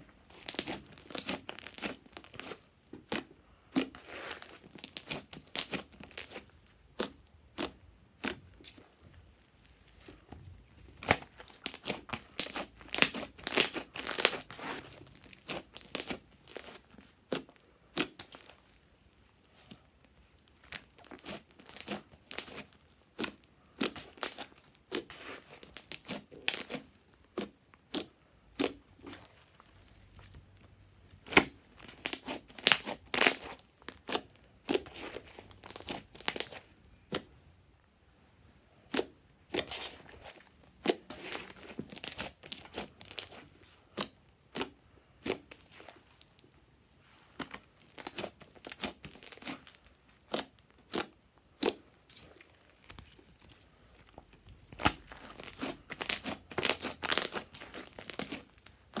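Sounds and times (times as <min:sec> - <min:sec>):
slime crackling and squishing: 0:00.0 - 0:37.4, 0:38.8 - 0:59.0.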